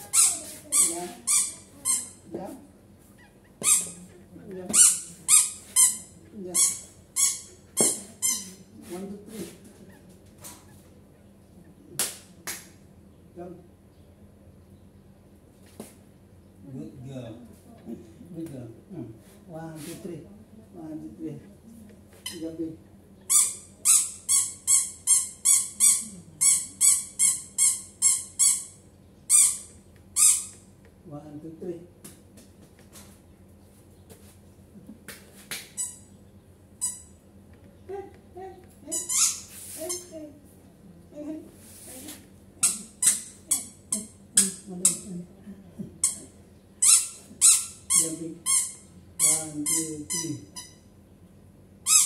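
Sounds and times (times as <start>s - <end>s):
squeaky dog toy squeaks: 0.0s - 2.2s, 3.2s - 8.6s, 23.3s - 30.6s, 35.8s - 36.1s, 36.8s - 37.2s, 38.8s - 40.1s, 42.6s - 43.8s, 46.0s - 50.8s.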